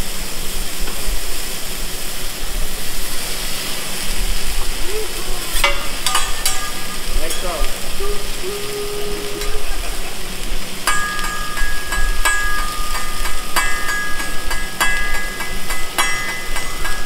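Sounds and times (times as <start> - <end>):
sizzle from hot plate: 0.0 - 17.0
metal utensils clanging on griddle: 5.4 - 8.0, 9.3 - 17.0.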